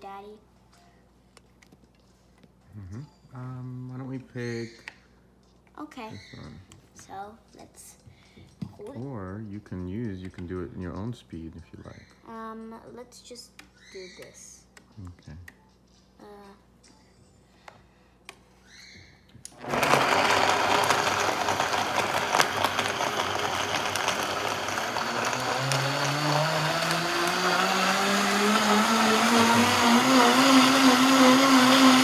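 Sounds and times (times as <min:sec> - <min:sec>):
blender motor whine: 0:19.5 - 0:32.0.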